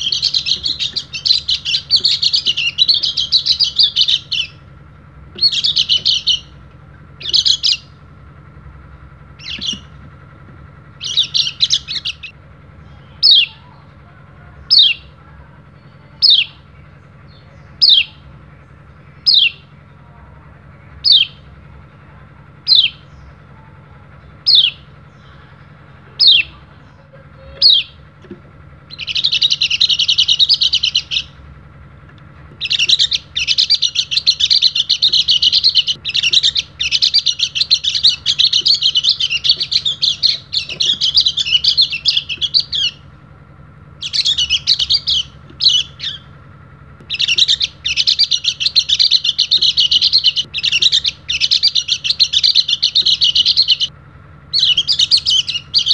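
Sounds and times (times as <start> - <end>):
bird chirping and twittering: 0.0 - 53.9, 54.5 - 55.9.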